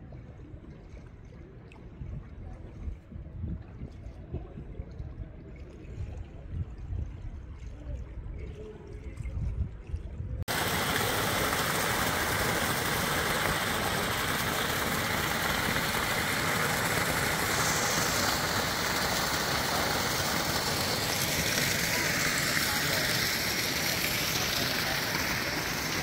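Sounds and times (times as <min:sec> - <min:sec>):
water stream splashing into pool: 0:10.4 - 0:26.0.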